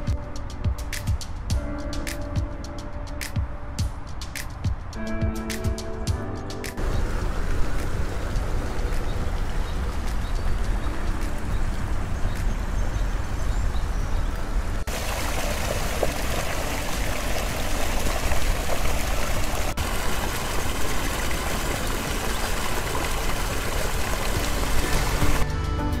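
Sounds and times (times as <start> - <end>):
steady low rumble: 6.2 - 14.9
creek water over rocks: 6.8 - 25.4
water pouring from pipe: 14.9 - 25.4.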